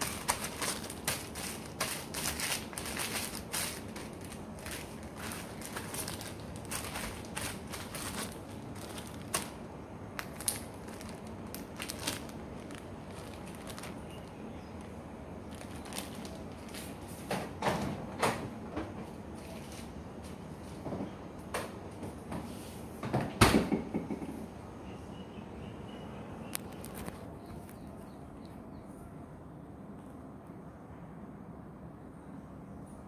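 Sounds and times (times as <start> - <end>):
plastic bag crinkling: 0.0 - 17.3.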